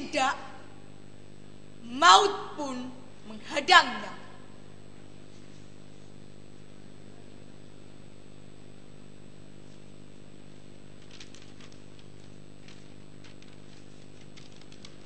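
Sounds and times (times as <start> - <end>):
low electrical hum: 0.0 - 15.0
paper crackling rustles: 10.7 - 15.0.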